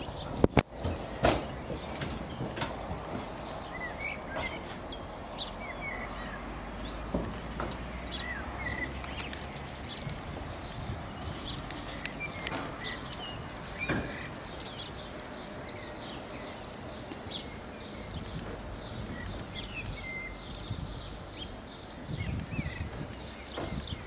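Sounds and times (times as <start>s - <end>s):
small birds chirping: 0.0s - 24.0s
steady outdoor noise: 0.0s - 24.0s
thump: 0.8s - 1.5s.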